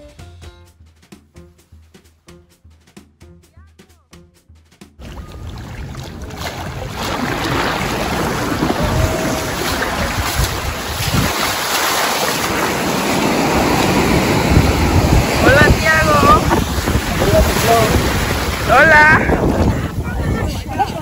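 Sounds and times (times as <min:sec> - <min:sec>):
ocean surf washing onto beach: 0:05.0 - 0:21.0
wind gusting on microphone: 0:05.0 - 0:21.0.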